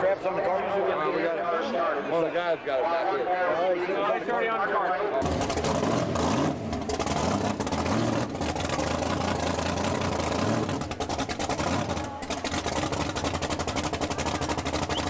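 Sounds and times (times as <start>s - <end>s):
drag car engine idling: 5.2s - 15.0s.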